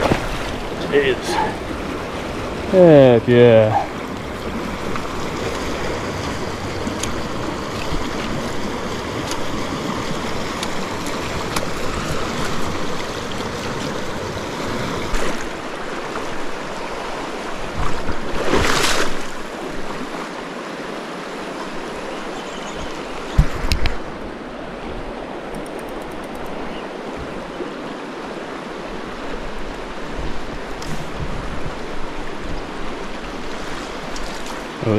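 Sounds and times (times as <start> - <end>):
water swish: 0.0 - 25.3
river current rushing: 0.0 - 34.9.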